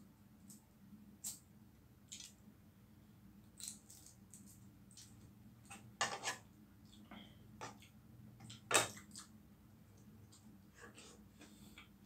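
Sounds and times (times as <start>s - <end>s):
eggshell cracking and peeling: 3.5s - 5.2s.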